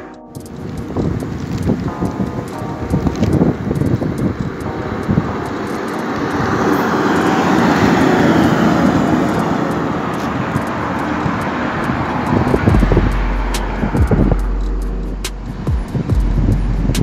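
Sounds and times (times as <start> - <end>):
truck driving past: 4.6 - 15.7.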